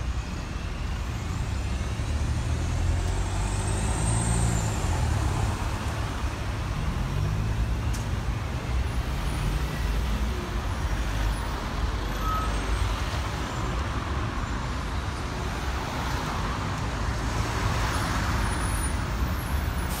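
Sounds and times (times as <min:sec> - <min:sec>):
road traffic passing: 0:00.0 - 0:20.0.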